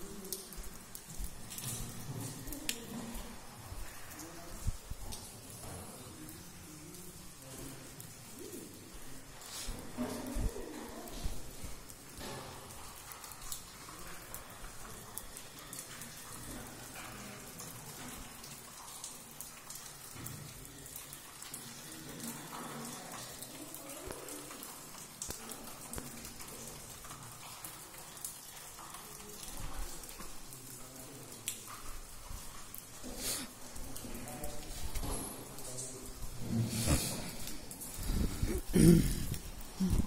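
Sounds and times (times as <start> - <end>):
water drops pattering: 0.0 - 40.0
steady hiss: 31.8 - 40.0.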